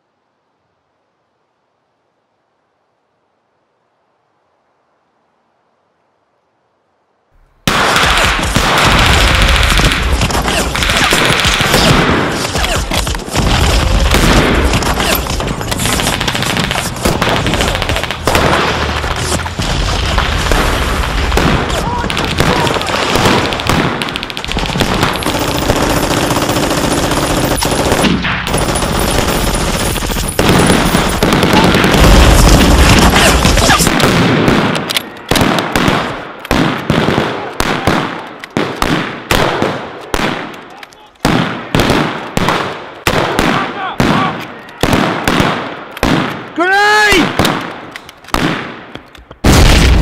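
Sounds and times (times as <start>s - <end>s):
machine gun and rifle fire: 7.7s - 40.4s.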